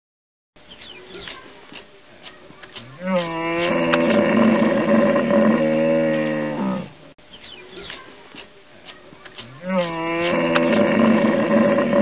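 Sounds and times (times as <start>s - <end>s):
hippopotamus low call: 9.4s - 12.0s.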